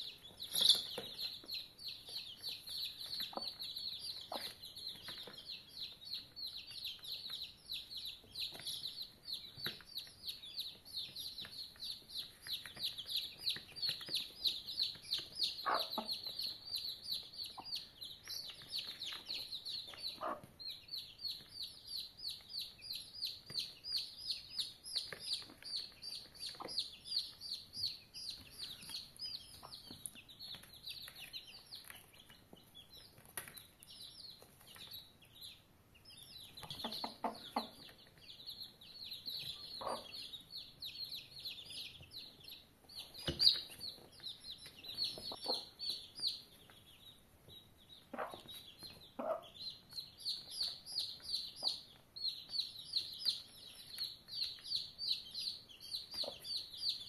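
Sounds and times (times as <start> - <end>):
chicks peeping: 0.0 - 57.0
hen clucking: 14.8 - 16.8, 20.0 - 20.5, 36.6 - 37.9, 39.5 - 40.3, 44.5 - 46.4, 48.1 - 49.7.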